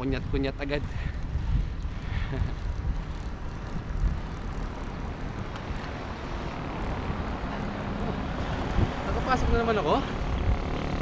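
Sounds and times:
wind rushing: 0:00.0 - 0:10.7
low road rumble: 0:00.0 - 0:11.0.

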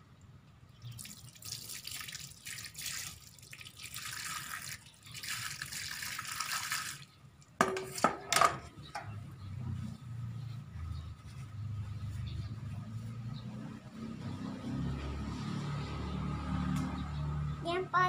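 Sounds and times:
water pouring and splashing: 0:00.8 - 0:07.6.

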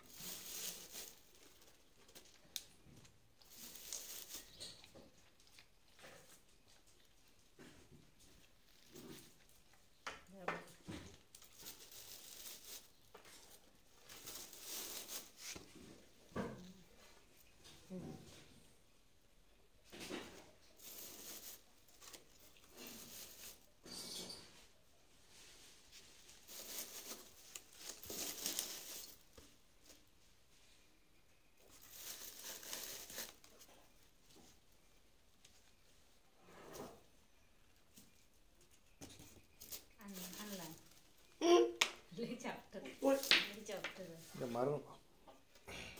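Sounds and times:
straw rustling and crackling: 0:00.0 - 0:09.9, 0:10.8 - 0:17.2, 0:20.0 - 0:23.9, 0:25.4 - 0:30.1, 0:31.6 - 0:34.6, 0:37.9 - 0:44.5.

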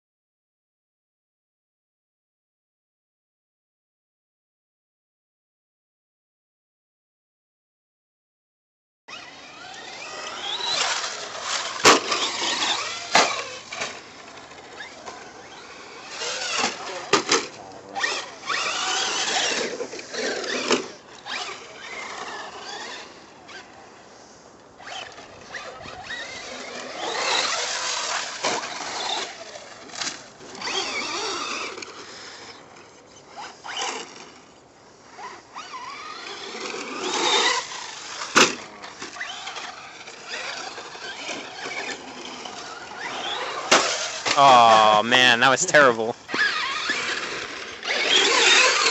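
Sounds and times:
rc truck motors whining: 0:09.1 - 0:23.8, 0:24.6 - 0:44.4, 0:46.2 - 0:48.9.

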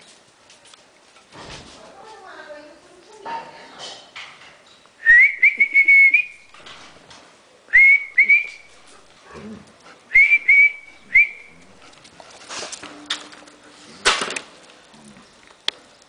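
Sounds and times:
person whistling: 0:05.0 - 0:06.4, 0:07.7 - 0:08.7, 0:10.1 - 0:11.6.

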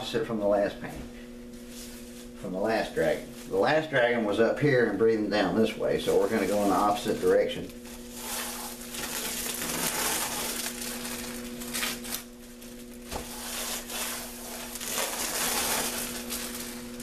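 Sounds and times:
steady low hum: 0:00.0 - 0:17.0
plastic wrapping crinkling: 0:06.1 - 0:17.0.

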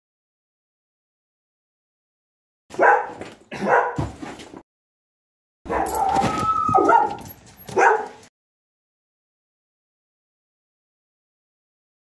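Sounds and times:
dog barking: 0:02.7 - 0:04.2, 0:05.7 - 0:08.3.

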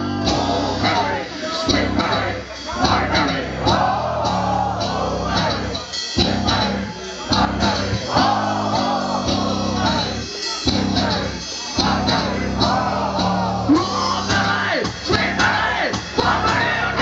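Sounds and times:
live metal band playing: 0:00.0 - 0:17.0
person singing: 0:00.0 - 0:17.0.

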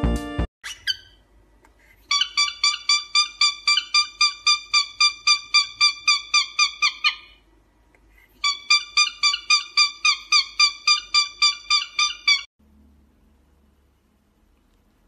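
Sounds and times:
cockatiel chirping: 0:00.6 - 0:01.2, 0:02.1 - 0:07.4, 0:08.4 - 0:12.5.

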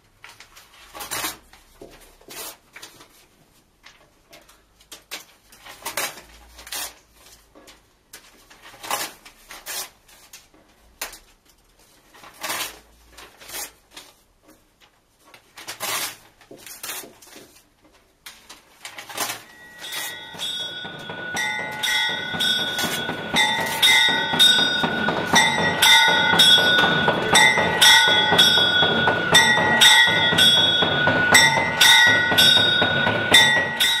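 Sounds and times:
book pages tearing: 0:00.3 - 0:03.2, 0:04.9 - 0:07.5, 0:08.4 - 0:11.3, 0:11.9 - 0:14.3, 0:15.4 - 0:17.7
bell-like electronic tones: 0:19.5 - 0:34.0.

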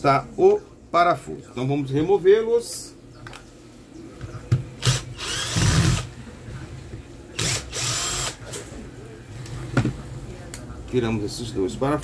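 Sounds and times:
cordless drill running in bursts: 0:04.8 - 0:06.1, 0:07.4 - 0:08.4.

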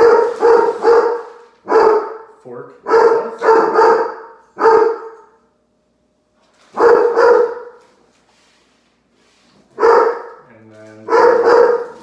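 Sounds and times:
dog barking: 0:00.0 - 0:05.4, 0:06.7 - 0:07.8, 0:09.8 - 0:10.4, 0:11.0 - 0:12.0.

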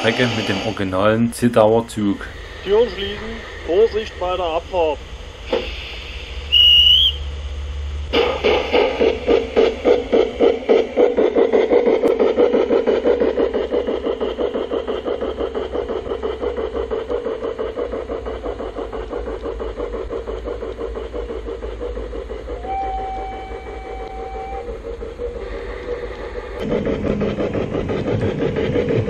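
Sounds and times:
steam locomotive chuffs: 0:00.0 - 0:29.0
steady high tone: 0:00.1 - 0:05.0.

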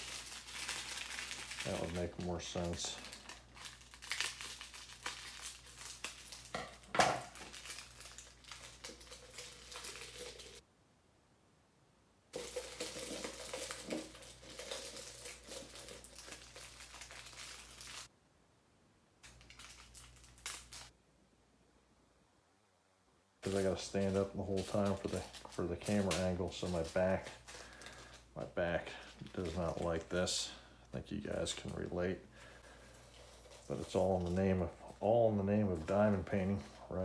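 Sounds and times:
plastic baggies crinkling: 0:00.0 - 0:10.6, 0:12.4 - 0:18.1, 0:19.2 - 0:20.9, 0:23.4 - 0:37.0
resin drills poured into jar: 0:12.4 - 0:16.8.

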